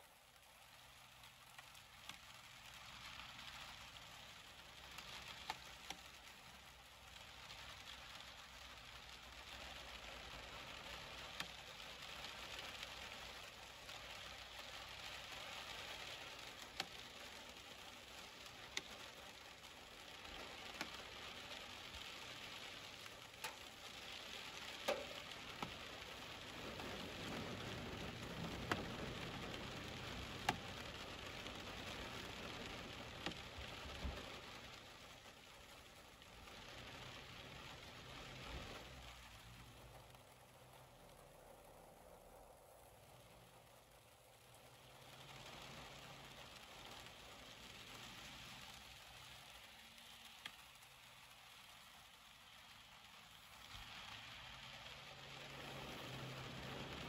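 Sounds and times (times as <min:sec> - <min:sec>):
sharp ticks of raindrops: 0:00.0 - 0:57.0
steady rain hiss: 0:00.0 - 0:57.0.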